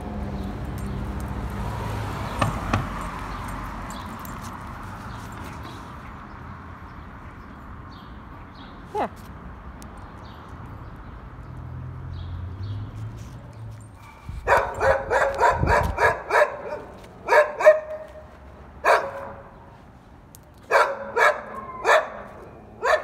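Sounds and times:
dog barking: 0:14.4 - 0:18.1, 0:18.8 - 0:19.5, 0:20.7 - 0:23.0.

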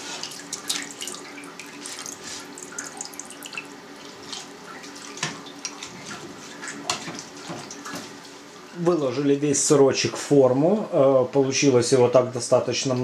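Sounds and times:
whey dripping and splashing: 0:00.0 - 0:08.4.

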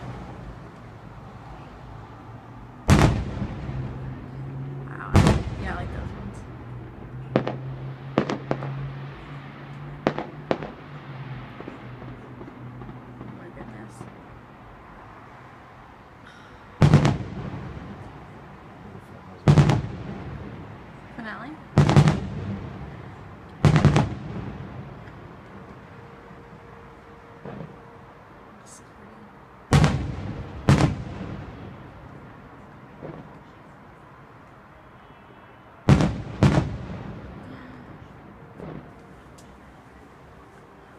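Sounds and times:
fireworks booming: 0:02.8 - 0:14.8, 0:16.2 - 0:25.8, 0:27.4 - 0:28.0, 0:29.7 - 0:33.8, 0:35.8 - 0:39.4.

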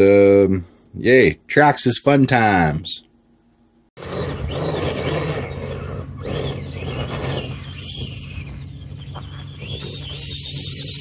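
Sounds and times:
steady low hum: 0:00.0 - 0:11.0
electric motor whining: 0:04.0 - 0:11.0.

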